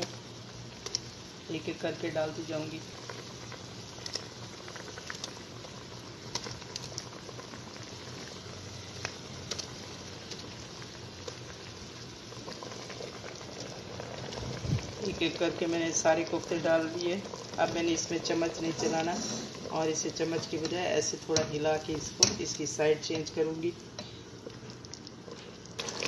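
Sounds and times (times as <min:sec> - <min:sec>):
pot boiling and bubbling: 0:00.0 - 0:26.0.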